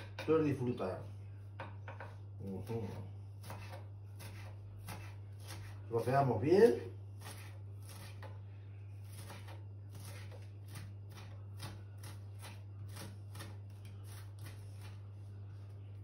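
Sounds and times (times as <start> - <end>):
knife chopping on wooden board: 1.6 - 5.8, 6.6 - 8.4, 9.1 - 15.0.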